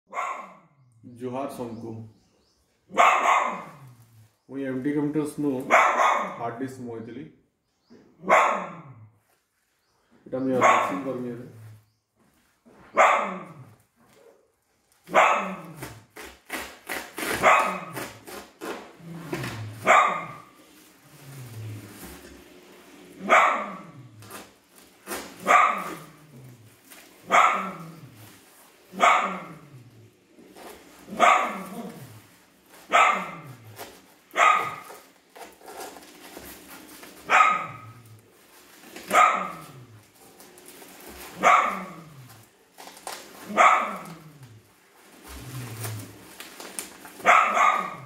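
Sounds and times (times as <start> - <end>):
dog barking: 0.1 - 0.7, 2.9 - 3.8, 5.7 - 6.4, 8.2 - 9.0, 10.6 - 11.1, 12.9 - 14.4, 15.1 - 15.8, 17.4 - 18.0, 19.8 - 20.5, 23.2 - 24.0, 25.4 - 26.2, 27.2 - 28.0, 29.0 - 29.6, 31.1 - 31.8, 32.9 - 33.6, 34.3 - 35.0, 37.3 - 38.0, 39.1 - 39.8, 41.4 - 42.2, 43.5 - 44.3, 47.2 - 48.0.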